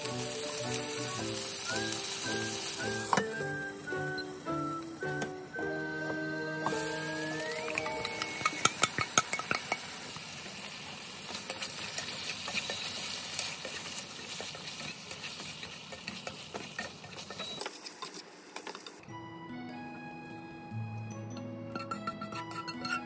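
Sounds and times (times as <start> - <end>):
chicken sizzling in frying pan: 0.0 - 18.6
tongs clicking against pan: 7.7 - 9.8.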